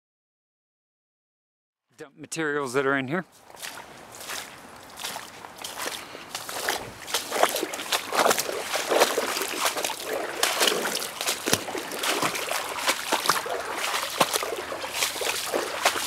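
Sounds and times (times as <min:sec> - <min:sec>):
creek water splashing: 0:02.8 - 0:16.0.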